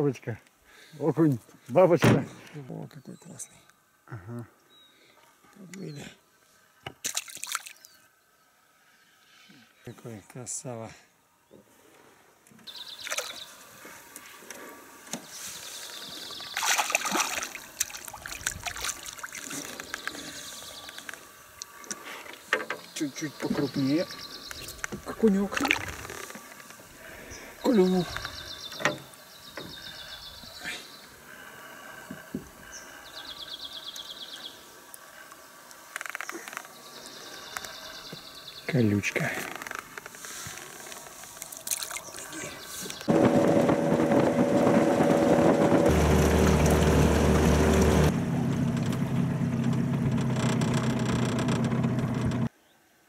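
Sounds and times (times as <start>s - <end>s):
fish splashing at water surface: 7.0s - 7.8s, 13.0s - 13.7s, 16.4s - 20.3s, 41.3s - 42.1s.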